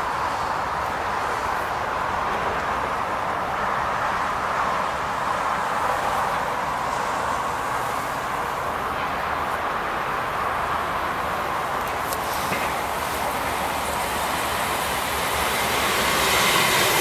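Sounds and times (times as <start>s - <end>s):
distant road traffic: 0.0s - 17.0s.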